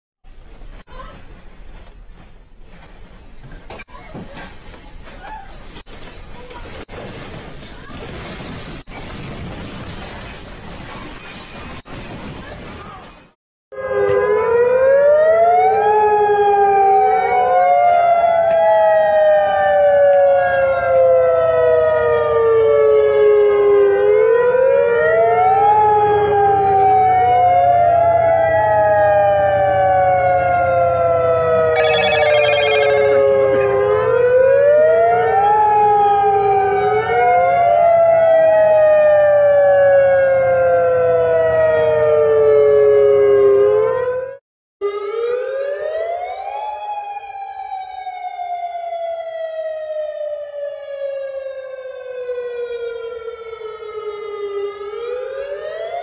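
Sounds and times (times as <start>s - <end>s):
warning sirens wailing: 13.7s - 56.0s.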